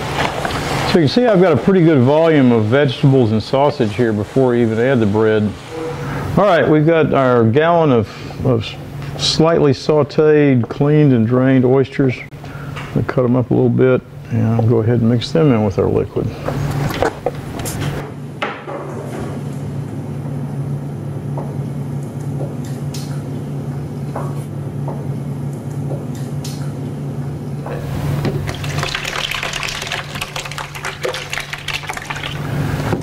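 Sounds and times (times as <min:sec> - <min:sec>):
steady low hum: 0:00.0 - 0:33.0
wet mixture sloshing pour: 0:27.8 - 0:33.0.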